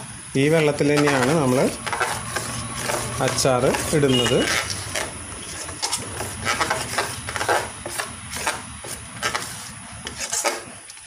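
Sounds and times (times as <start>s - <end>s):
wet swishes of mixing paste: 0.4s - 11.0s.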